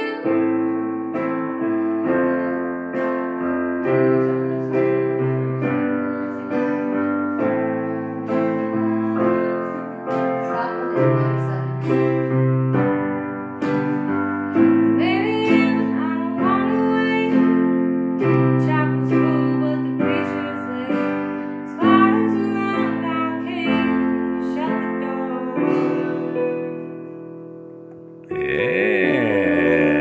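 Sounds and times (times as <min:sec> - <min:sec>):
woman singing: 0:00.0 - 0:00.8, 0:01.4 - 0:07.1, 0:08.3 - 0:12.1, 0:14.5 - 0:17.6, 0:18.2 - 0:26.6
digital piano chords: 0:00.0 - 0:30.0.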